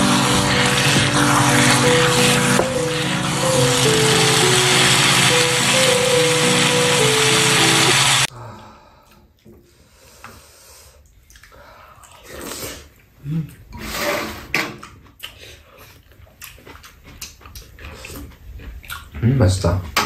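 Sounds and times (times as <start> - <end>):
waltz music: 0.0 - 8.3
chewing and sipping soup: 11.0 - 13.7, 15.0 - 19.2.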